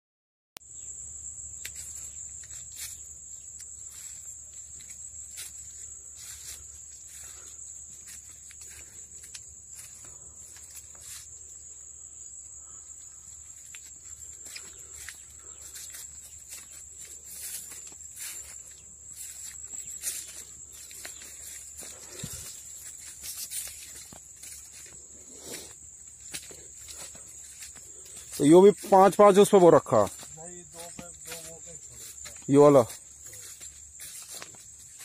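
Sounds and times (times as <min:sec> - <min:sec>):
insects droning: 0:00.6 - 0:35.0
footsteps through dry leaves: 0:01.7 - 0:11.4, 0:13.4 - 0:35.0.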